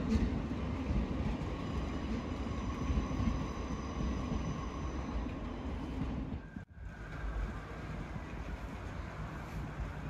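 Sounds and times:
train rumbling: 0.0s - 10.0s.

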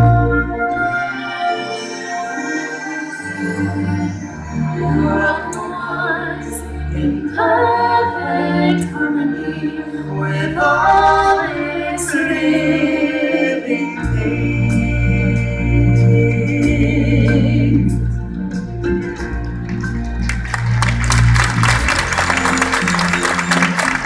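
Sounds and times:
singers holding long notes: 0.0s - 18.6s
soft backing music: 0.0s - 24.0s.

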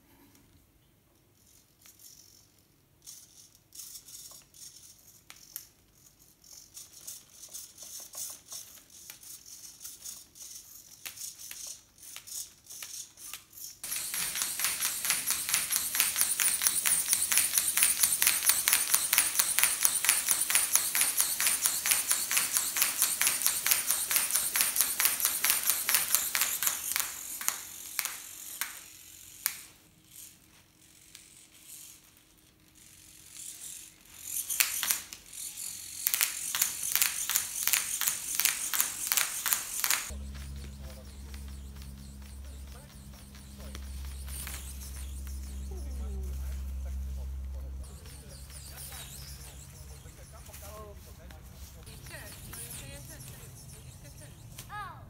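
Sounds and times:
rattle of plastic parts: 1.2s - 46.2s
servo clicks and rustles: 1.3s - 54.8s
wing sheeting flapping: 13.8s - 28.2s, 36.0s - 52.9s.

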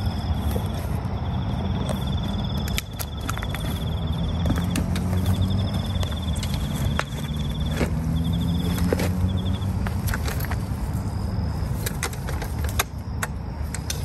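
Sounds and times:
insect trilling: 0.0s - 9.9s
steady low hum: 0.0s - 14.0s.

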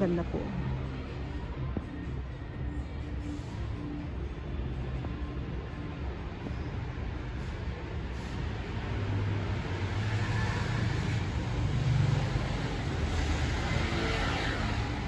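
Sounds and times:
traffic noise: 0.0s - 15.0s
bus engine drone passing: 5.5s - 15.0s.

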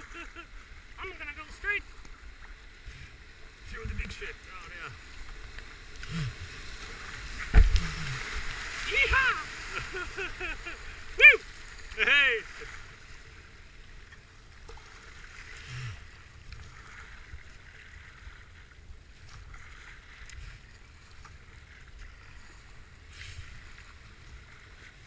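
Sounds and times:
whitewater rushing: 0.0s - 1.9s, 6.1s - 12.9s
paddle strokes splashing: 0.0s - 25.0s.

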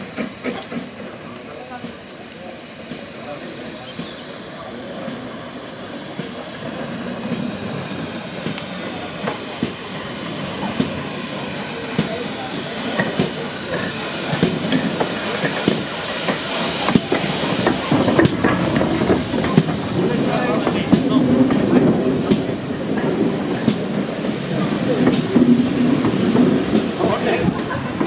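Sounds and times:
steam train approaching: 0.0s - 28.0s
wheels clicking over rail joints: 12.8s - 24.1s.

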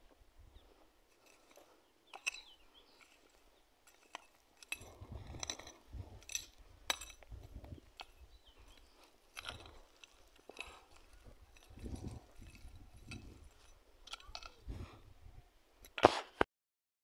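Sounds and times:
hoe blade clinking on stones: 1.1s - 14.7s
dull thuds and crunching earth: 3.9s - 14.9s.

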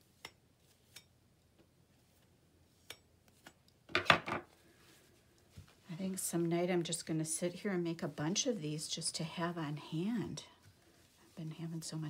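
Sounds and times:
wiping rustle and scrape: 1.8s - 3.6s, 4.5s - 12.0s.

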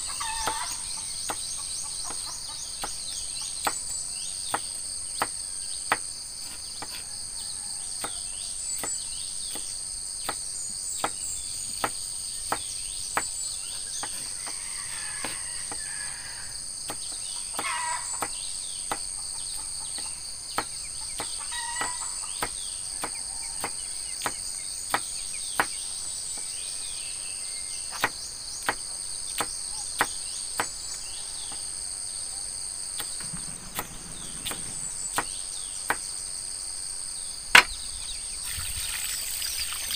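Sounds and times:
bird chirps: 0.0s - 7.0s, 8.0s - 16.0s, 33.0s - 36.0s, 37.2s - 39.9s
crickets chirping: 0.0s - 39.9s
knife chopping on wooden block: 4.5s - 7.1s, 8.8s - 10.4s, 20.0s - 25.8s.

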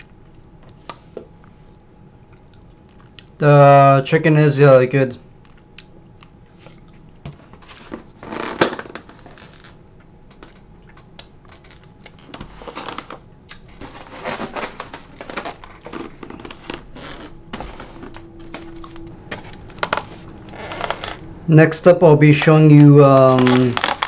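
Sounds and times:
plastic bags rustling: 11.5s - 21.3s, 22.2s - 24.0s.

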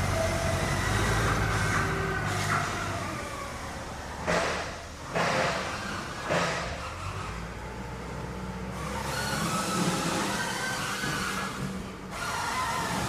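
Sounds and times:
factory machinery humming: 0.0s - 13.0s.

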